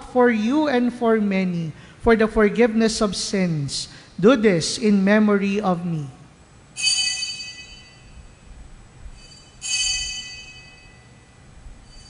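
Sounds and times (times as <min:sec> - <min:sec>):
altar bell ringing: 0:06.8 - 0:08.5, 0:09.1 - 0:12.0.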